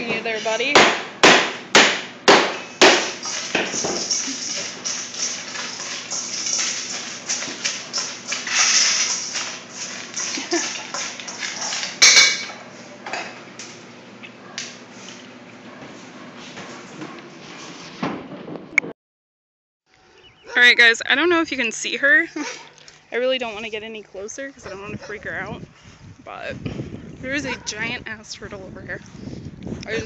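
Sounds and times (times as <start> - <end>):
steel bowls clattering on metal: 3.0 - 13.4.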